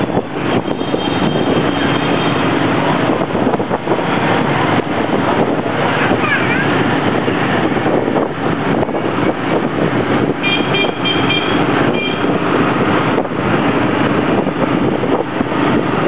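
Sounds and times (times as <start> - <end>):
wind on microphone: 0.0 - 16.0
short horn beeps: 10.4 - 12.4.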